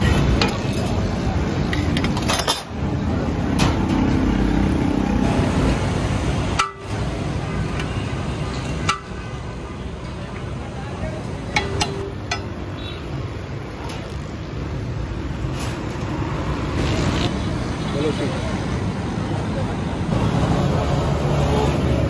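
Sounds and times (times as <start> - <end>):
street traffic noise: 0.0 - 22.0
metal ladle clinking on pot: 11.5 - 12.7.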